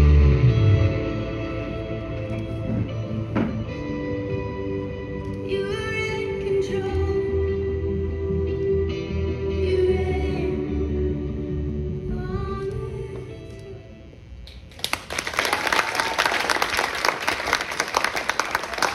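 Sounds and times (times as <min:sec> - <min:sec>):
crowd applauding: 0:14.7 - 0:18.9.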